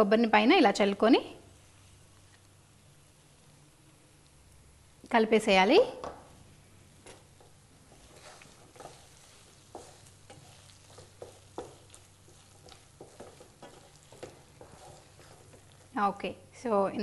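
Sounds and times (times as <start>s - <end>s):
spatula scraping pan: 7.1s - 16.0s.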